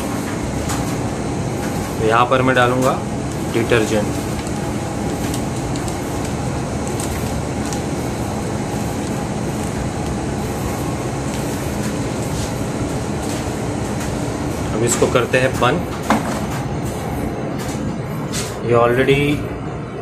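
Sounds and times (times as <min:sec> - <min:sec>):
ship machinery drone: 0:00.0 - 0:20.0
powder rustling from plastic bag: 0:03.2 - 0:13.2.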